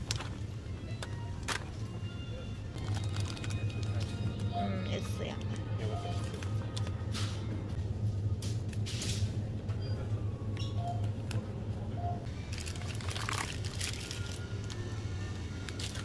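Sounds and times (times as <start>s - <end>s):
plastic packaging rustling: 2.8s - 4.2s, 12.5s - 14.8s.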